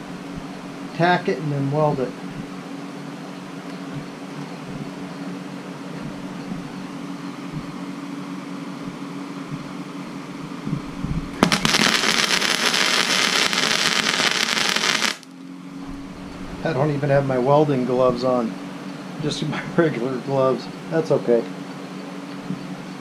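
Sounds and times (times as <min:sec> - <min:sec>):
steady hum: 0:00.0 - 0:23.0
welder arc crackling: 0:11.4 - 0:15.3.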